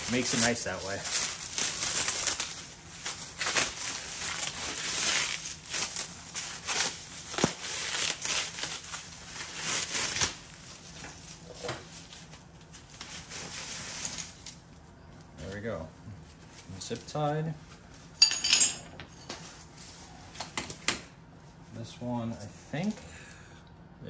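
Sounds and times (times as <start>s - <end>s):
plastic packaging crinkling and tearing: 0.0s - 14.8s.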